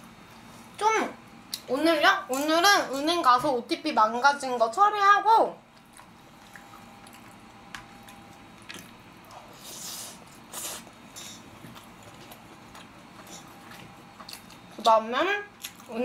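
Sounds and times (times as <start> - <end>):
chewing: 5.8 - 14.9, 15.5 - 16.0.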